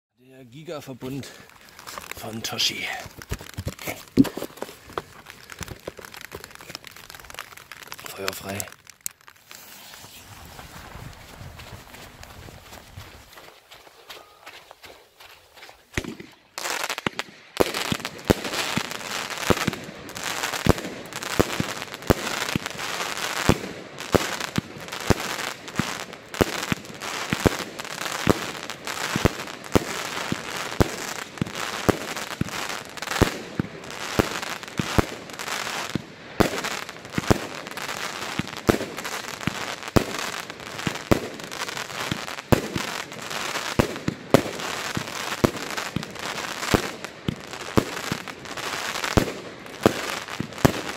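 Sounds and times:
fireworks bursting overhead: 0.5 - 13.4, 15.9 - 50.9
firework crackling: 0.5 - 13.6, 15.8 - 50.9
firework launch thumps: 3.0 - 6.5, 15.9 - 16.4.

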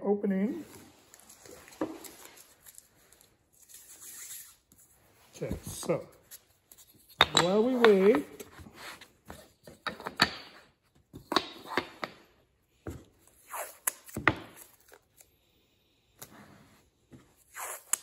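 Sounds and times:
tape peeling: 1.1 - 4.8.

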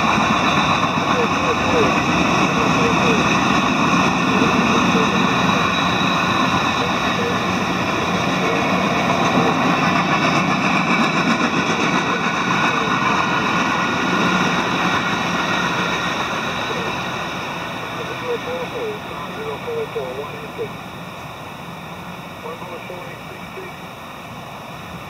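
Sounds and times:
freight train wheels clattering: 0.0 - 18.0.

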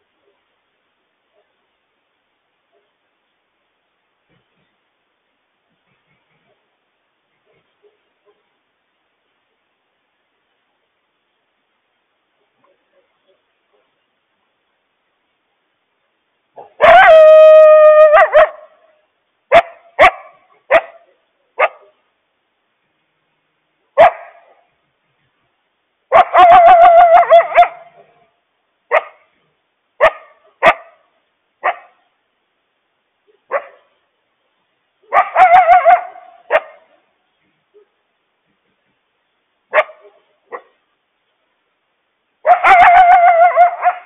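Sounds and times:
coyote barking and howling: 16.6 - 18.7, 26.1 - 28.1, 35.1 - 36.9, 42.4 - 44.0.

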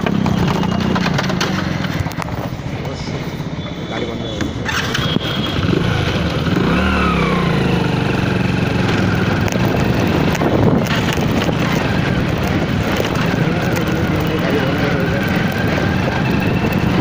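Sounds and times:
vehicle engine running: 0.0 - 3.2, 4.5 - 17.0.

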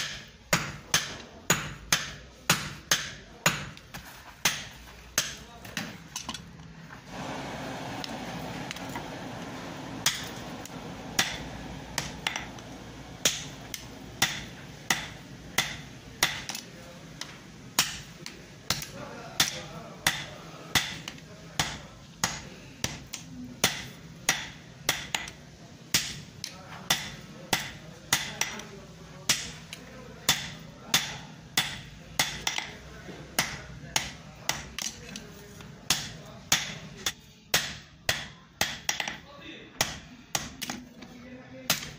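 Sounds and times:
hammer striking iron on anvil: 0.0 - 3.8, 10.0 - 10.4, 11.2 - 12.6, 13.2 - 16.6, 17.8 - 18.1, 18.7 - 26.2, 26.9 - 28.6, 30.3 - 32.7, 35.9 - 39.2, 39.8 - 40.8
steady noise: 6.9 - 21.0.

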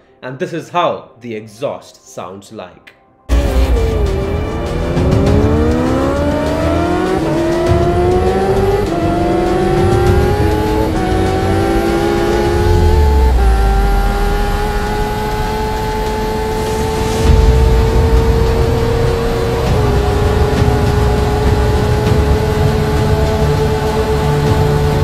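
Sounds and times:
motorcycle engine accelerating: 3.3 - 25.0.

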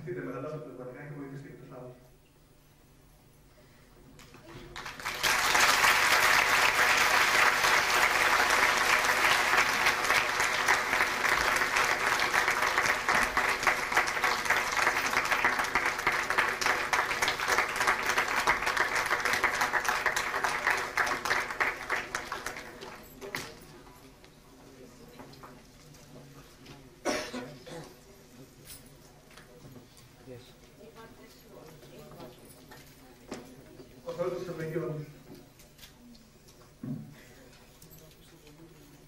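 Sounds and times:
audience applauding: 4.7 - 23.0.

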